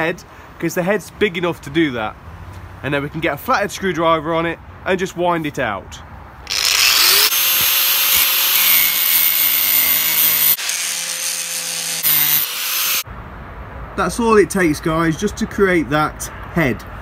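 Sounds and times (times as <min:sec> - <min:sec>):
angle grinder cutting metal: 0:06.5 - 0:13.0.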